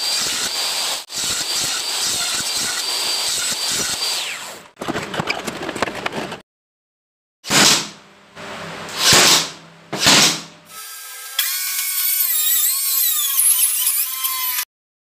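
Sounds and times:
nailer shots: 7.5s - 8.0s, 8.9s - 10.6s.

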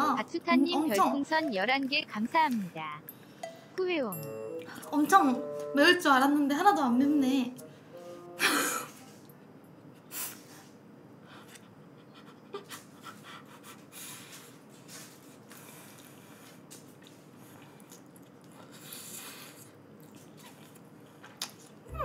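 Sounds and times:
person chewing noodles: 14.1s - 21.8s.

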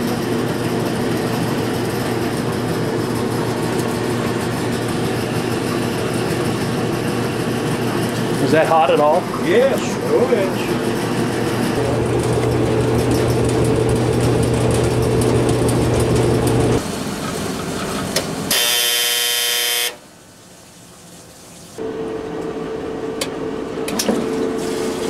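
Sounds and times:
dryer motor humming: 0.0s - 17.0s
washer drain pump humming: 0.0s - 17.7s, 20.6s - 25.0s
dryer timer buzzer: 18.5s - 20.0s.

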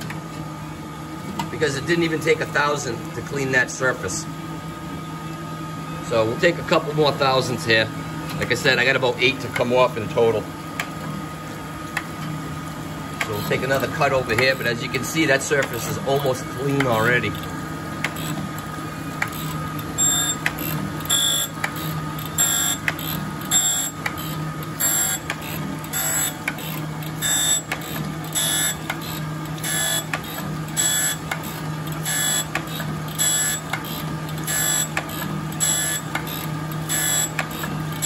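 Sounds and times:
steady machine hum: 0.0s - 38.0s
high-pitched grinding screech: 22.4s - 23.9s.

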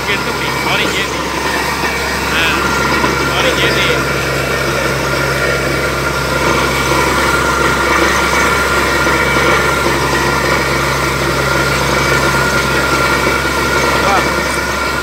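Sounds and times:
drilling rig engine running: 0.0s - 15.0s
water and slurry gushing: 0.0s - 15.0s.

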